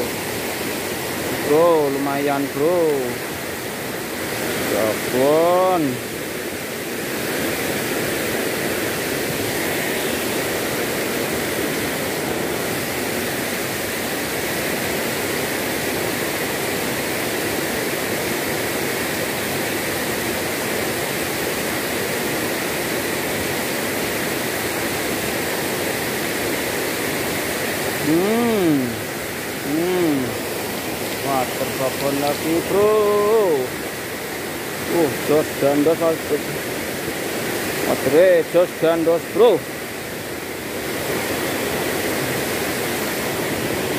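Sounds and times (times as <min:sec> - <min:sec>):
river rushing over waterfall: 0:00.0 - 0:43.9
person's voice: 0:01.4 - 0:03.2, 0:04.6 - 0:06.0, 0:28.0 - 0:30.4, 0:31.1 - 0:33.8, 0:34.8 - 0:36.6, 0:37.8 - 0:39.7.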